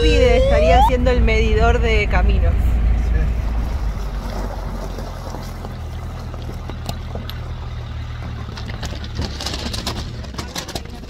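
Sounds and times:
vehicle engine running low: 0:00.0 - 0:11.0
stones crackling under tyres: 0:03.6 - 0:11.0.

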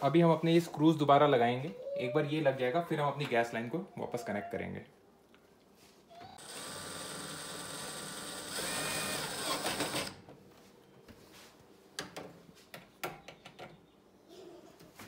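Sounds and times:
cordless drill driving screw into metal: 0:06.5 - 0:10.2.

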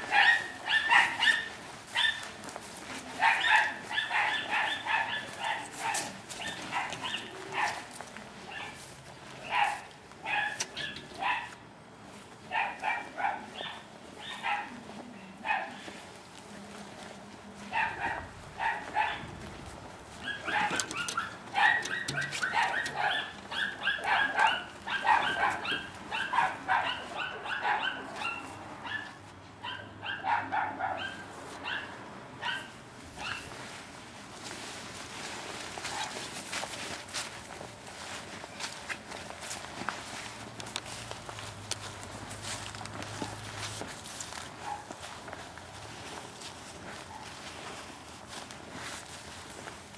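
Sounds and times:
dog barking: 0:00.0 - 0:02.3, 0:03.2 - 0:07.9, 0:08.5 - 0:08.8, 0:09.4 - 0:11.6, 0:12.5 - 0:14.8, 0:15.4 - 0:16.0, 0:17.7 - 0:19.3, 0:20.2 - 0:33.5, 0:35.9 - 0:36.2, 0:44.6 - 0:45.0.

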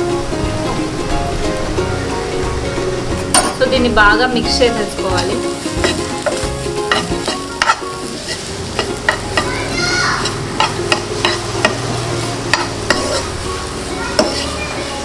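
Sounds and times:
oil sizzling: 0:00.0 - 0:15.0
spatula scraping a pan: 0:04.6 - 0:09.6, 0:10.2 - 0:15.0
spatula knocking against pan: 0:05.2 - 0:07.8, 0:10.2 - 0:11.8, 0:14.2 - 0:14.5.

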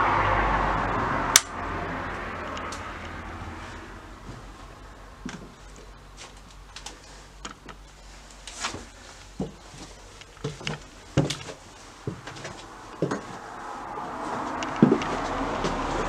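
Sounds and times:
steady background noise: 0:00.0 - 0:16.0
footsteps on bare floor: 0:03.6 - 0:05.6, 0:08.5 - 0:16.0
small clicks and creaks: 0:06.2 - 0:08.7.

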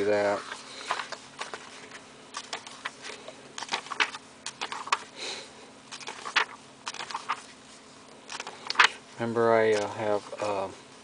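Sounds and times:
paper pages rustling and slapping: 0:00.0 - 0:05.1, 0:05.9 - 0:07.6, 0:08.3 - 0:09.0, 0:09.6 - 0:10.6.

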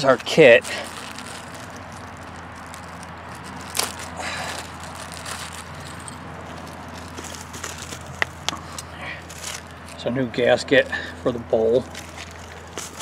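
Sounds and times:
plastic packaging crinkling: 0:00.0 - 0:10.1, 0:11.9 - 0:13.0.

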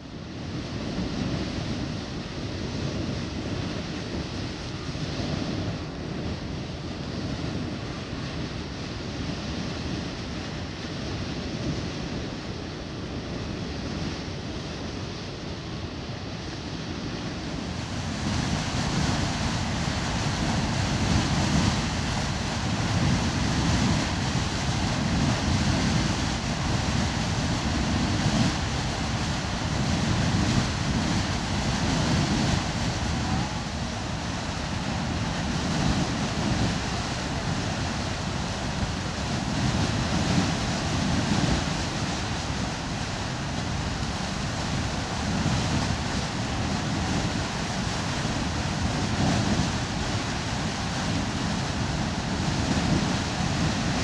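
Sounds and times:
geyser water and steam jetting: 0:17.6 - 0:54.0.

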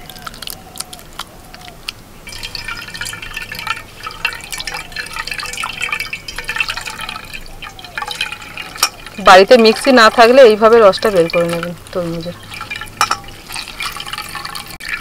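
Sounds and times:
juice dripping into steel bowl: 0:00.0 - 0:15.0.

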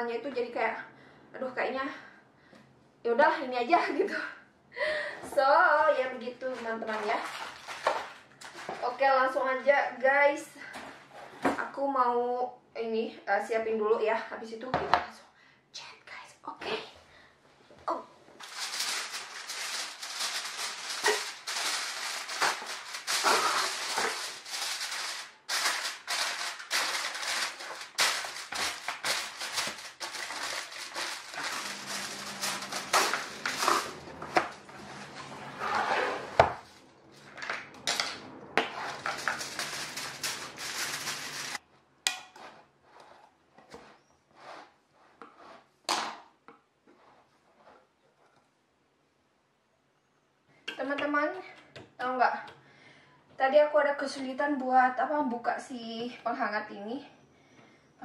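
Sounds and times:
aluminium foil crinkling: 0:18.4 - 0:35.2, 0:38.8 - 0:41.6.

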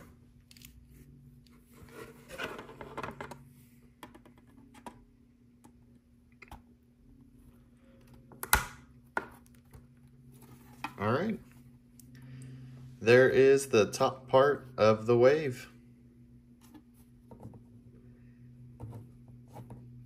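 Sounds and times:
sharp plastic snap: 0:08.4 - 0:08.8.

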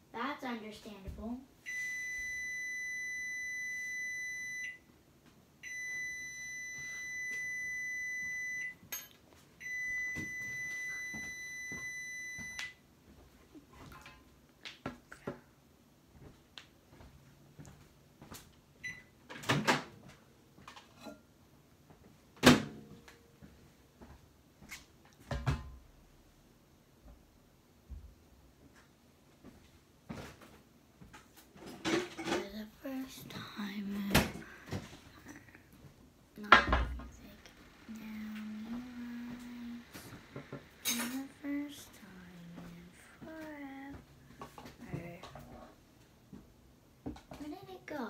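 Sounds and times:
high appliance beeps: 0:01.6 - 0:04.9, 0:05.6 - 0:09.0, 0:09.6 - 0:12.8, 0:18.8 - 0:19.2, 0:37.9 - 0:41.4.

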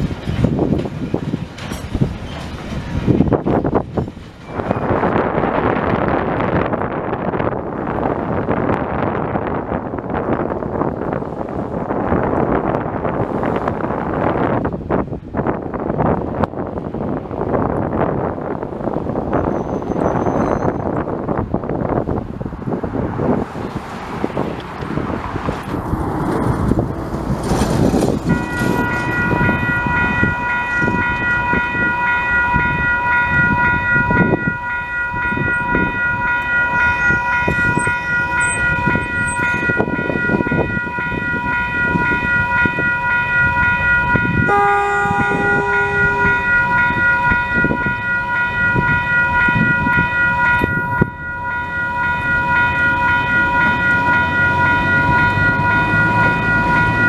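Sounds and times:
locomotive engine running: 0:23.9 - 0:57.0
locomotive horn toot: 0:28.2 - 0:32.2, 0:44.1 - 0:49.0.

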